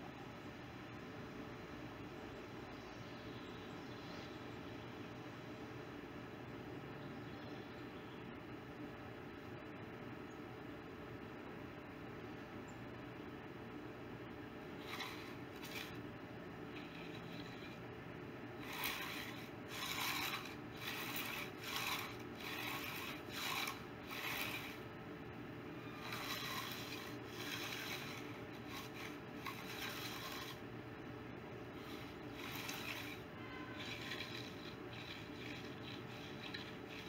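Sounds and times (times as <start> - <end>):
hand tool scraping concrete: 14.8 - 16.0, 16.8 - 17.8, 18.6 - 24.8, 25.9 - 30.6, 31.8 - 37.0.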